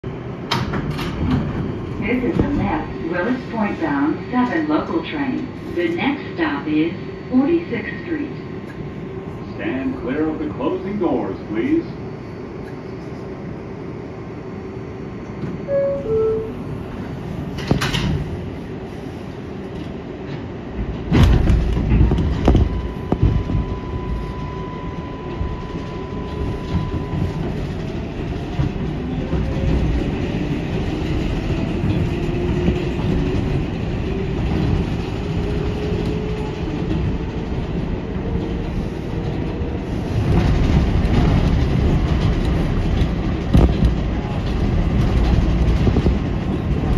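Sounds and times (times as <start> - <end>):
wheels clattering on rails: 25.2 - 46.9.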